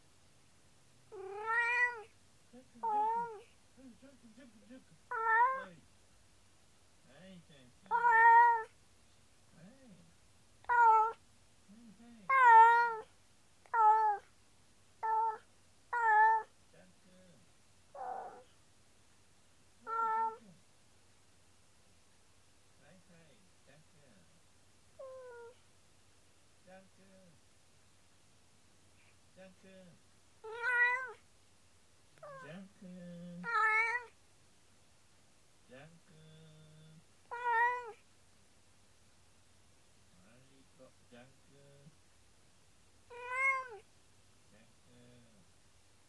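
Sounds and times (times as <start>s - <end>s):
cat meowing: 1.1s - 2.1s, 2.8s - 3.5s, 5.1s - 5.7s, 7.8s - 8.8s, 10.6s - 11.2s, 12.3s - 14.3s, 15.0s - 16.5s, 18.0s - 18.5s, 19.8s - 20.5s, 25.0s - 25.6s, 30.4s - 31.2s, 32.2s - 32.6s, 33.4s - 34.2s, 37.3s - 38.0s, 43.1s - 43.9s
faint low murmurs: 2.5s - 5.9s, 9.5s - 13.0s, 35.7s - 37.9s, 44.5s - 45.5s.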